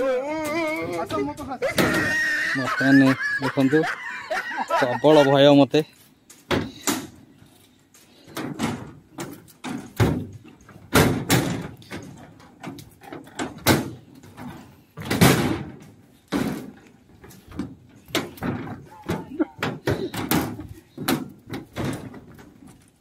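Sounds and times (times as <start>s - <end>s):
footsteps on footbridge deck: 5.9s - 23.0s.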